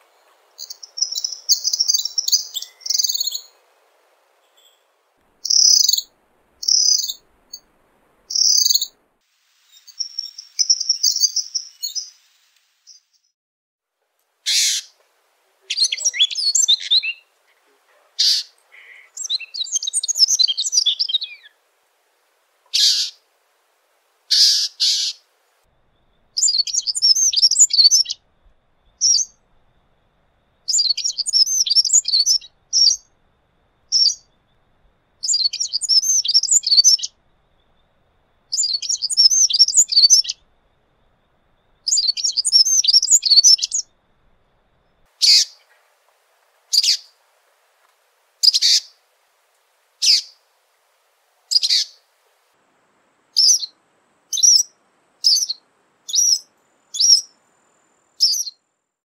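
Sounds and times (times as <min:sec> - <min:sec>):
wren singing warbled phrases: 0:00.6 - 0:03.6, 0:05.4 - 0:07.2, 0:08.3 - 0:08.9, 0:09.8 - 0:12.2, 0:14.5 - 0:21.5, 0:22.7 - 0:23.2, 0:26.4 - 0:28.2, 0:29.0 - 0:29.4, 0:30.7 - 0:33.0, 0:33.9 - 0:34.2, 0:35.2 - 0:37.1, 0:38.6 - 0:40.4, 0:41.9 - 0:43.9, 0:45.2 - 0:45.8, 0:46.7 - 0:47.1, 0:48.4 - 0:49.0, 0:50.0 - 0:50.4, 0:51.5 - 0:52.0, 0:53.4 - 0:57.3, 0:58.2 - 0:58.6
sharp bird call notes: 0:05.4 - 0:07.2, 0:14.5 - 0:15.0, 0:15.7 - 0:21.5, 0:22.7 - 0:23.2, 0:24.3 - 0:25.2.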